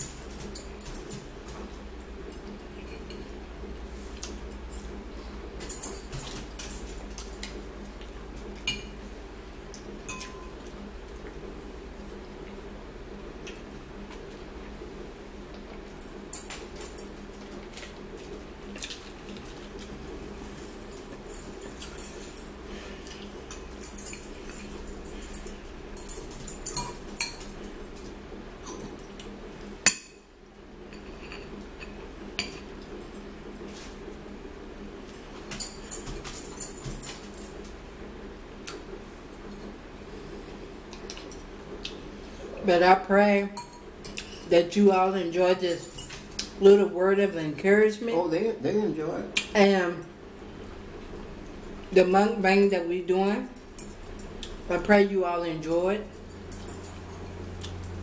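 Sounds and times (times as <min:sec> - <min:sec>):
steady low hum: 0:00.0 - 0:58.0
cutlery clinking on ceramic bowls: 0:10.1 - 0:10.7, 0:23.5 - 0:27.5.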